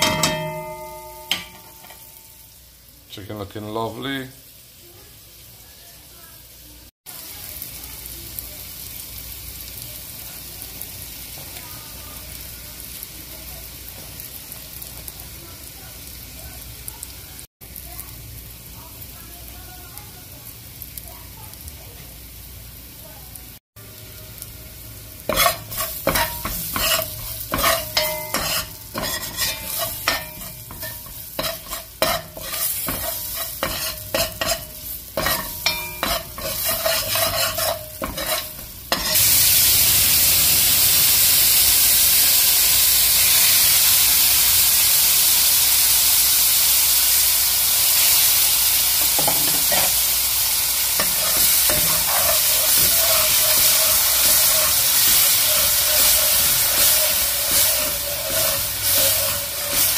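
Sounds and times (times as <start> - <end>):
sizzling hiss: 0.0 - 59.9
metal spoon scraping a pot: 25.3 - 39.2, 51.0 - 59.9.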